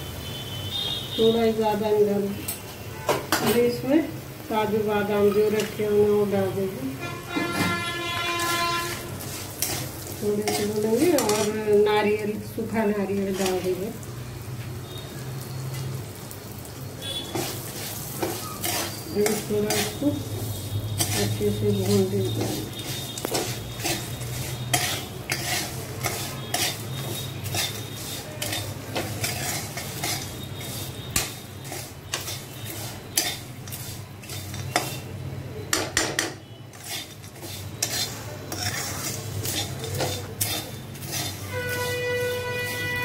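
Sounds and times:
metal spatula scraping metal pan: 7.2s - 11.7s, 17.2s - 35.1s, 36.7s - 43.0s.

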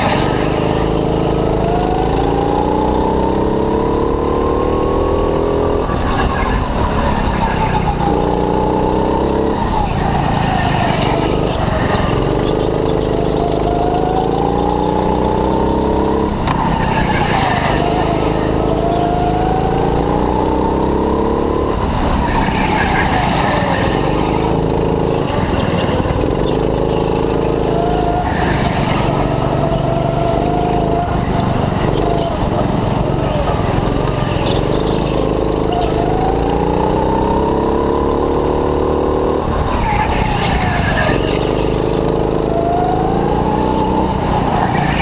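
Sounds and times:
go-kart engine revving: 0.0s - 45.0s
tyres squealing: 39.5s - 42.3s.

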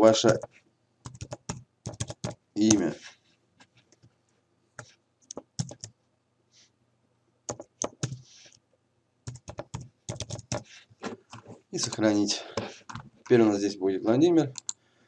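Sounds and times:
typing on computer keyboard: 0.3s - 2.8s, 5.3s - 5.9s, 7.5s - 8.2s, 9.3s - 10.7s, 14.5s - 14.8s.

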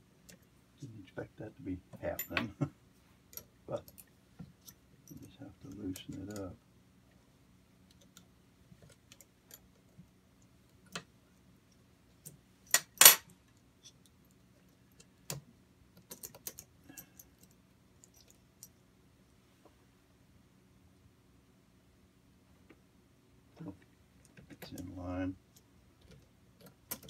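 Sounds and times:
small metal parts clicking: 3.3s - 6.6s, 12.2s - 18.7s, 25.5s - 27.0s.

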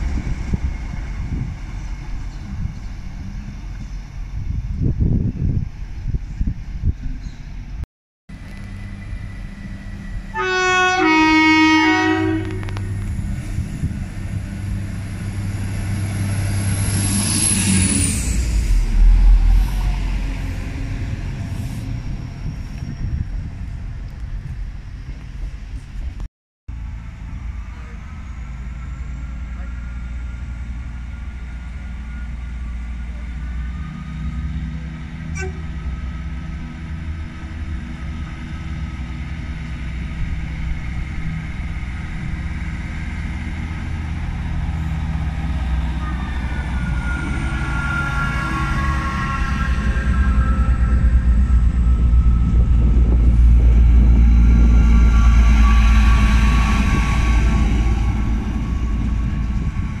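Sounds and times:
train engine and wheels rumbling: 0.0s - 60.0s
high whining tone: 44.4s - 60.0s.

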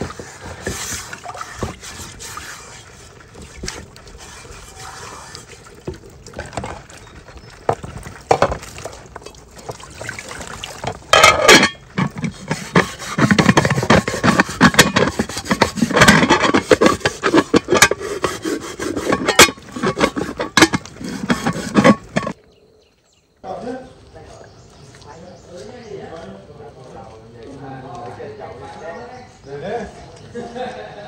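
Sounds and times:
scraping: 0.0s - 7.0s, 10.8s - 22.4s
hard objects knocking and clinking: 10.9s - 18.4s.

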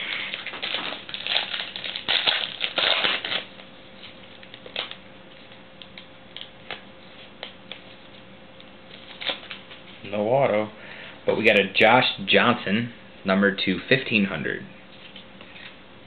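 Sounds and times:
wrapper crinkling: 0.0s - 5.6s.

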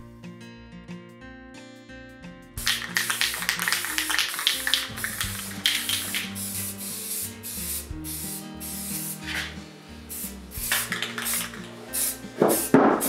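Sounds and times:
background music: 0.0s - 13.0s
spray can hissing: 2.6s - 13.0s.

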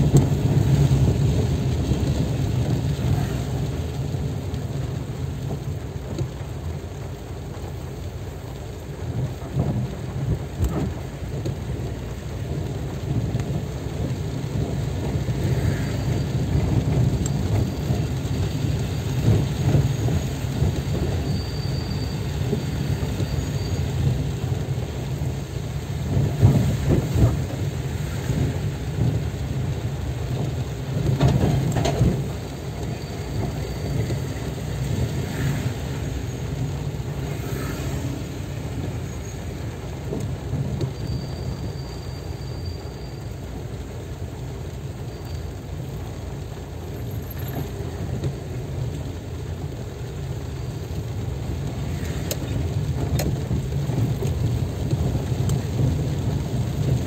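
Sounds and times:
steady low rumble: 0.0s - 21.2s
heavy rain on car roof: 0.0s - 57.0s.

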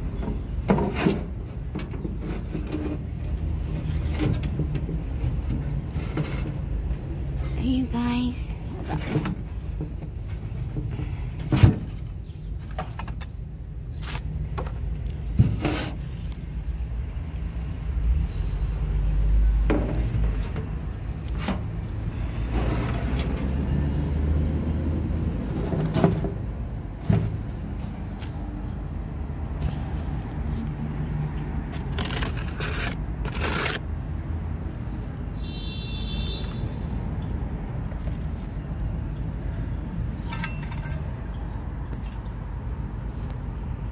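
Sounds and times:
knocks and scrapes of objects handled: 14.0s - 16.5s.

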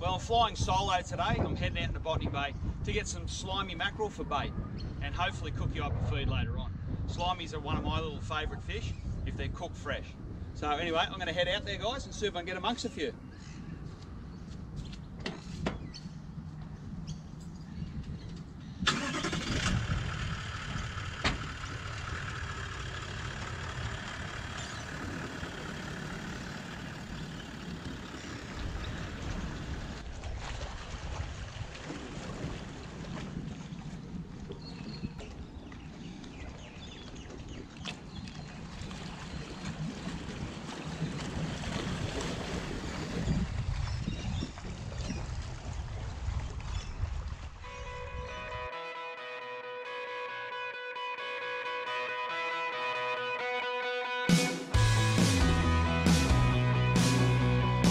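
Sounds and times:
wind on microphone: 0.0s - 11.0s, 13.6s - 22.3s, 24.5s - 48.7s
propeller churning water: 18.4s - 48.8s
engine starting and idling: 18.8s - 30.0s
outboard motor running at low revs: 19.3s - 30.2s, 31.9s - 46.9s, 54.8s - 57.9s.

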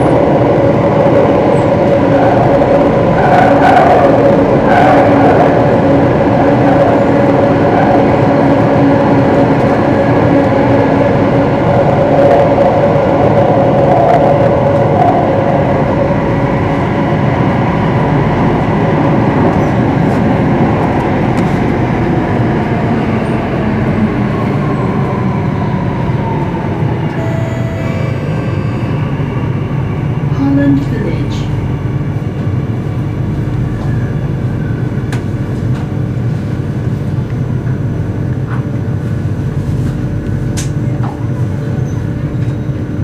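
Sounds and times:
train wheels rumbling on rails: 0.0s - 43.0s
train motor whine: 24.0s - 30.9s.

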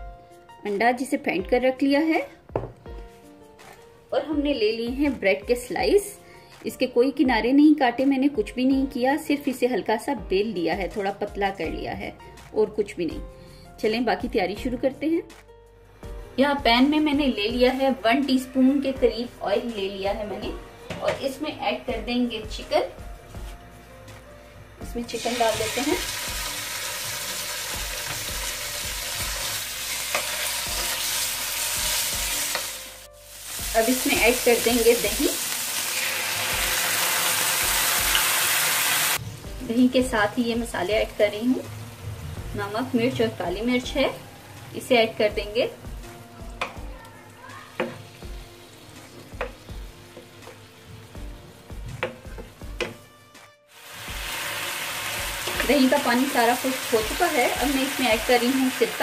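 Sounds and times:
wooden spatula knocking on pan: 2.5s - 2.8s, 47.8s - 48.1s, 49.2s - 50.6s, 51.7s - 53.1s
chicken sizzling in hot oil: 25.0s - 52.9s, 53.7s - 59.0s.

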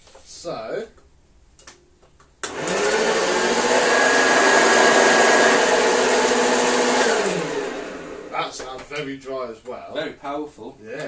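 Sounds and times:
vacuum cleaner switch click: 2.4s - 2.8s
vacuum cleaner motor whine: 2.4s - 8.6s.

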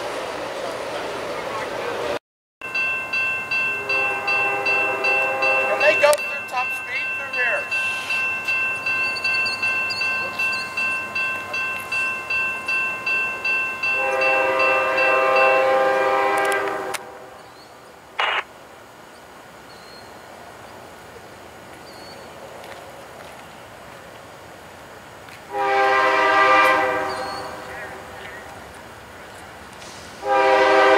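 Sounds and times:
bell dinging: 2.6s - 15.5s
locomotive air horn blast: 3.8s - 5.9s, 13.9s - 17.4s, 25.5s - 28.1s, 30.2s - 30.9s.

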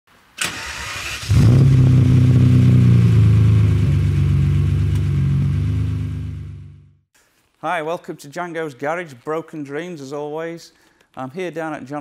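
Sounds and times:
car engine starting and running: 0.4s - 7.0s.

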